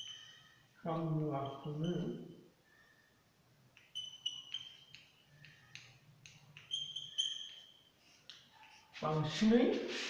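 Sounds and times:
chalk squeaking: 0:00.0 - 0:02.4, 0:03.7 - 0:09.3
chalk tapping on blackboard: 0:03.8 - 0:08.9.

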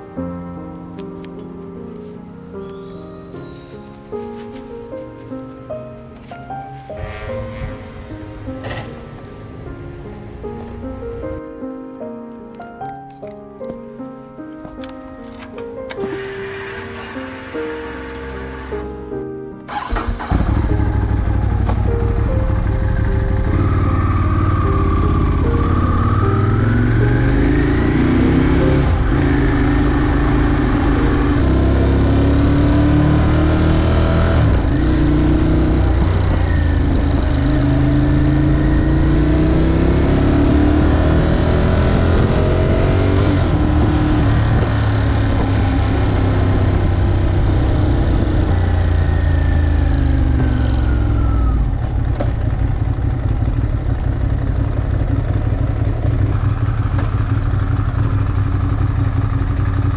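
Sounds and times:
motorcycle engine accelerating: 0:19.7 - 0:59.9.

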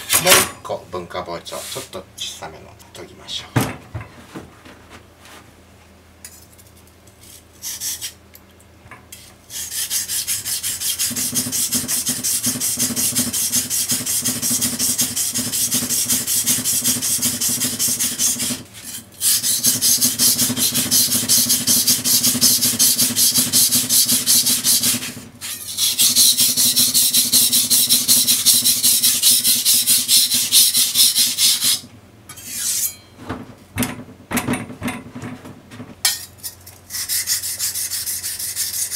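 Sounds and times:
knife scraping on whetstone: 0:09.1 - 0:33.1, 0:36.1 - 0:38.9.

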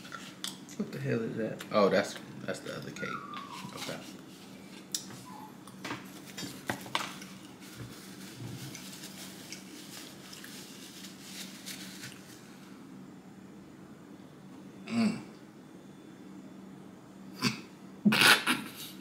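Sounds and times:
faint steady hum: 0:00.0 - 0:19.0
napkin rustling: 0:06.0 - 0:12.5.

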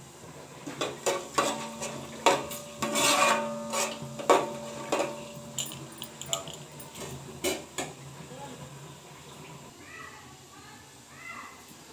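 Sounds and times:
ladle scraping metal pot: 0:00.6 - 0:07.8.

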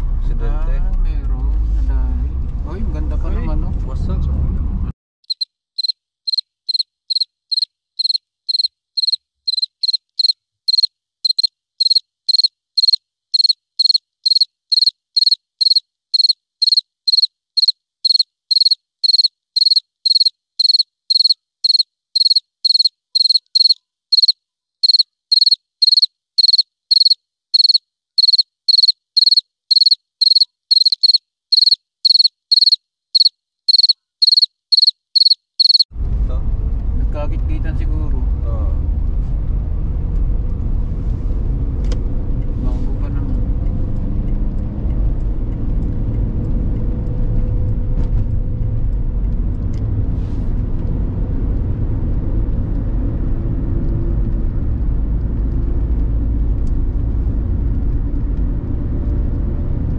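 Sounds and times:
cricket chirping: 0:05.3 - 0:35.9.

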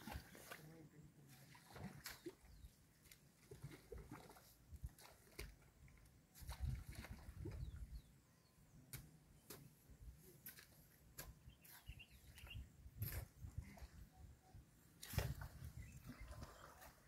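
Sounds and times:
faint bird chirps: 0:11.4 - 0:14.7.

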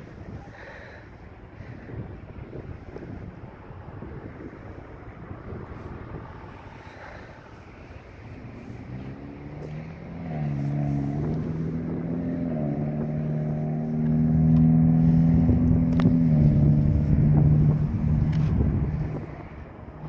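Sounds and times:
motor engine running: 0:06.8 - 0:19.6.

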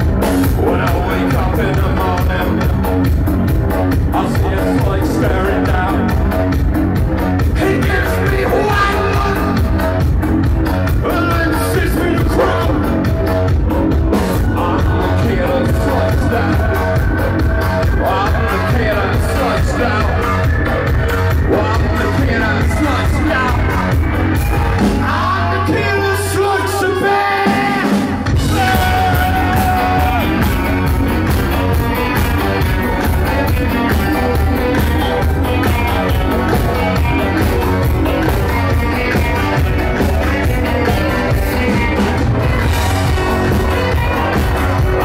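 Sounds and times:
live dance-punk band: 0:00.0 - 0:45.0
shouted singing: 0:07.5 - 0:09.7, 0:14.2 - 0:45.0.

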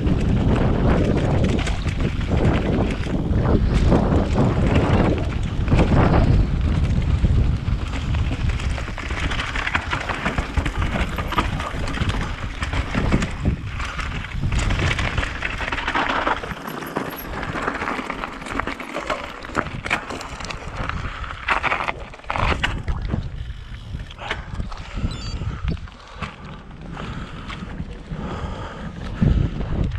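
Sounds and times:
wind buffeting microphone: 0:00.0 - 0:16.5, 0:19.5 - 0:29.9
bike rattling and knocking: 0:00.0 - 0:22.8
tyre noise on dirt: 0:00.0 - 0:22.9.

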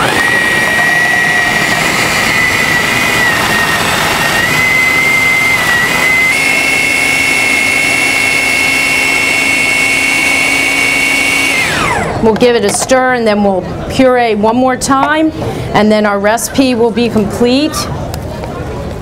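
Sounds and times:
food processor motor whining: 0:00.0 - 0:12.4.

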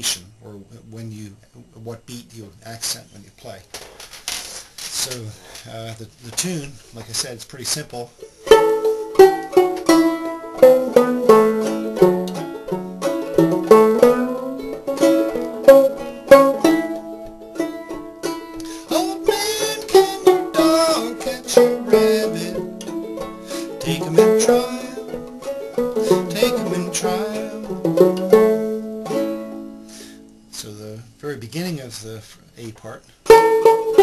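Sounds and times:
banjo melody: 0:07.2 - 0:30.9, 0:33.2 - 0:34.0.

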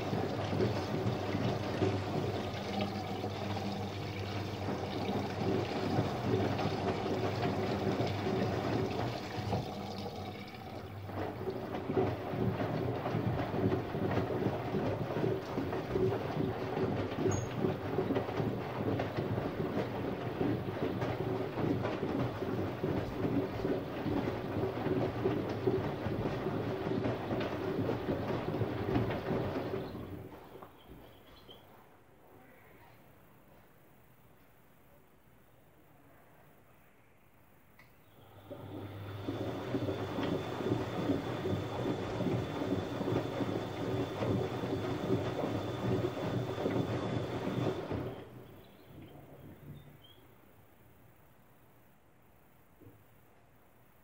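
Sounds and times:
water and laundry sloshing in drum: 0:00.0 - 0:31.7, 0:38.1 - 0:50.3
steady motor hum: 0:38.2 - 0:48.5.

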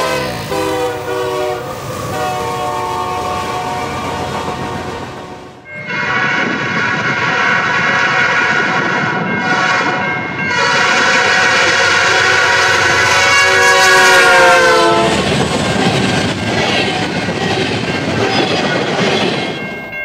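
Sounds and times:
locomotive air horn blowing: 0:00.0 - 0:15.2
rumble of passing train: 0:00.0 - 0:20.0.

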